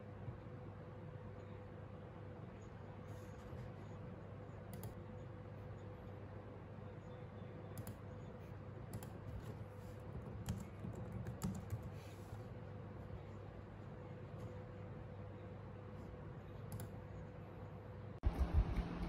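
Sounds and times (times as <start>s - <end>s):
faint steady hum: 0.0s - 19.0s
laptop keyboard typing: 8.9s - 12.1s.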